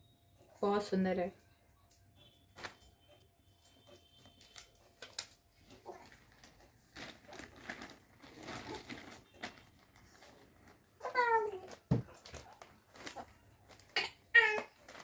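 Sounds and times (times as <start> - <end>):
faint rustling and handling: 2.5 - 15.0.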